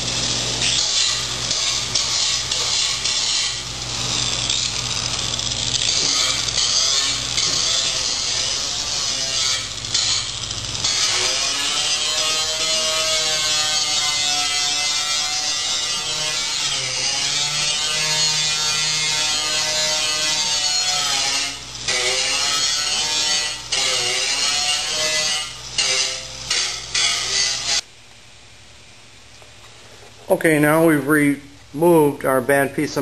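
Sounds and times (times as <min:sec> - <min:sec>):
angle grinder cutting metal: 0:00.0 - 0:27.8.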